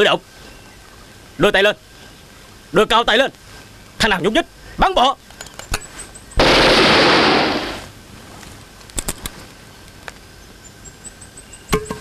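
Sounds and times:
loud burst of noise: 6.4 - 7.9.

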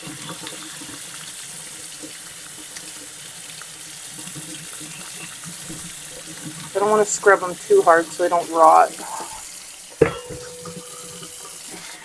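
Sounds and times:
tap water running: 0.0 - 12.0.

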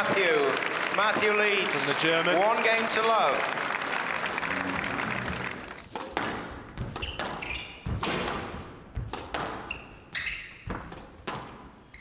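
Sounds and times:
squash ball hits: 5.8 - 11.8
shoes squeaking on wooden floor: 6.7 - 12.0.

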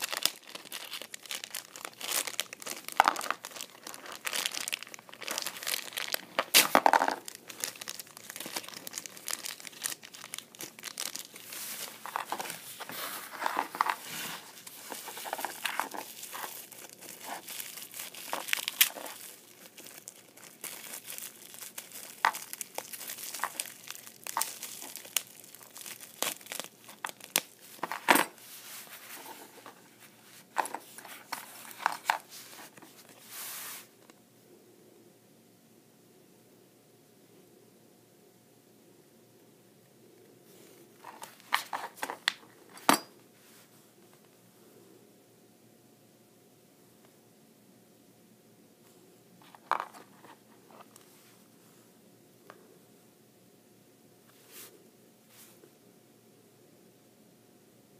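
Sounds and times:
plastic bags crinkling and tearing: 0.0 - 28.4.

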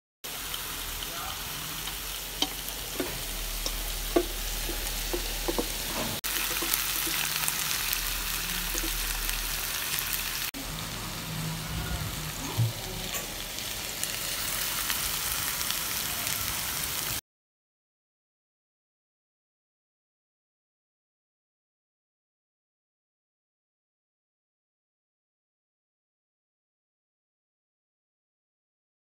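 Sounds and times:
chicken sizzling in frying pan: 0.3 - 17.2
oil popping: 2.3 - 10.0.

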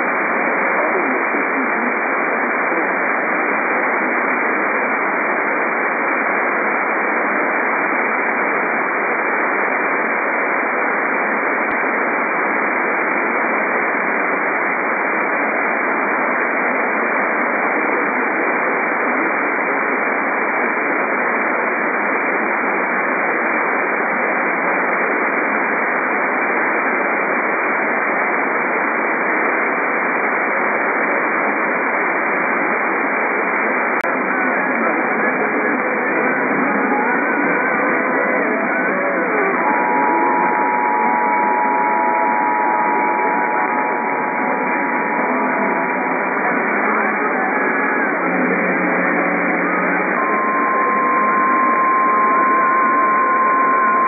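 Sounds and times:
radio static hiss: 0.0 - 54.0.

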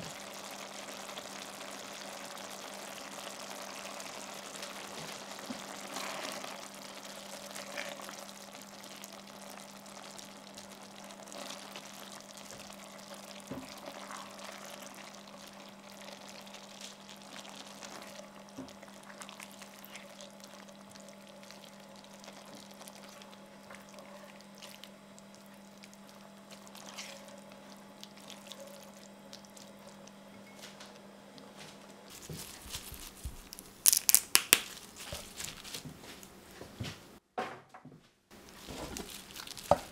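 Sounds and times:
sauce bubbling and popping: 0.0 - 30.2, 32.1 - 35.8, 38.3 - 39.9.

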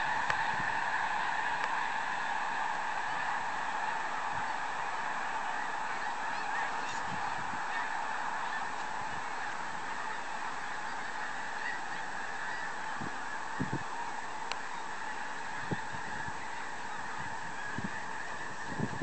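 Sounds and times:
flock of geese honking: 0.0 - 19.0.

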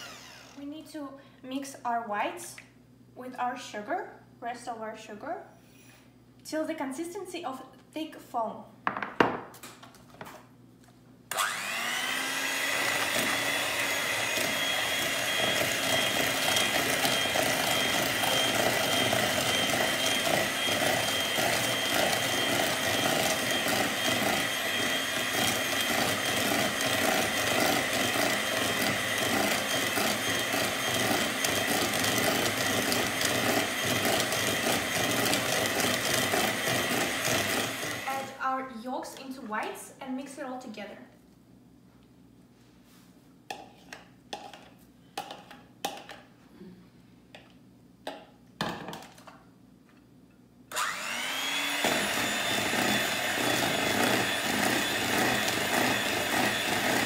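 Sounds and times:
electric hand mixer whining: 0.0 - 0.6, 11.3 - 38.4, 50.7 - 57.0.

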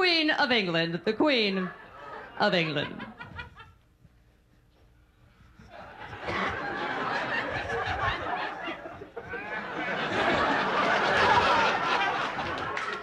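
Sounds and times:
audience laughing: 1.4 - 3.9, 5.3 - 13.0.

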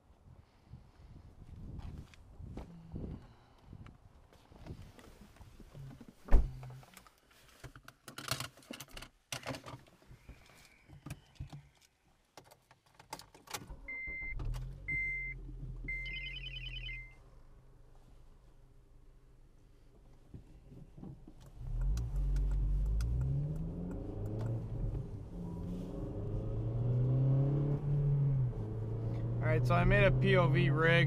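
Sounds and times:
car door thump: 6.3 - 6.6
car engine starting and running: 13.4 - 17.8, 21.0 - 31.0
dashboard chime beeps: 13.9 - 17.2
clicks: 21.3 - 24.7.

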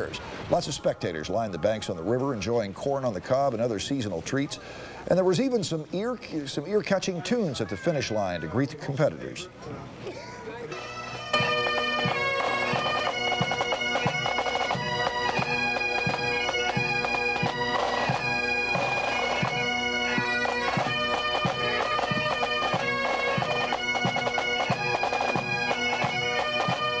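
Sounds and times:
bagpipe drones: 10.7 - 27.0
bagpipes playing a tune: 10.7 - 27.0.

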